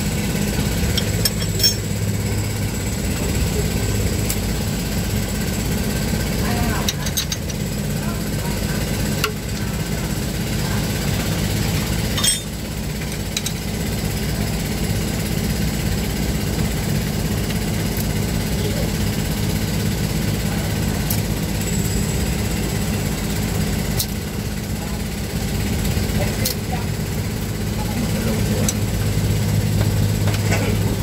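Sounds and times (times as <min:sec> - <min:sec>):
engine rumbling: 0:00.0 - 0:31.0
wrenches clinking on metal: 0:01.0 - 0:01.9.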